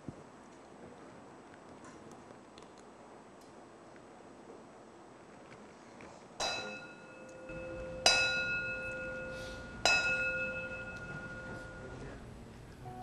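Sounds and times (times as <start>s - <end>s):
bell ringing: 6.4s - 12.2s.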